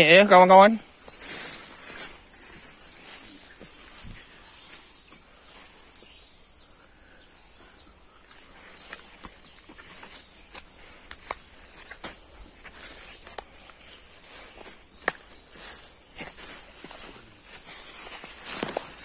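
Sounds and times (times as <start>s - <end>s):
insects chorus: 0.0s - 19.0s
footsteps on dry leaves: 0.9s - 5.9s, 8.4s - 19.0s.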